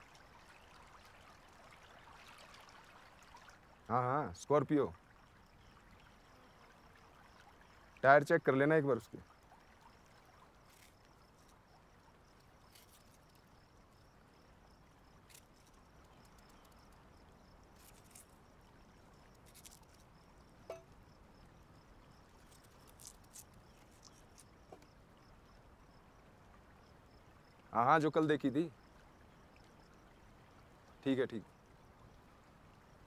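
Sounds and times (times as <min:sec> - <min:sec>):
soft ticks: 0:15.3 - 0:17.0.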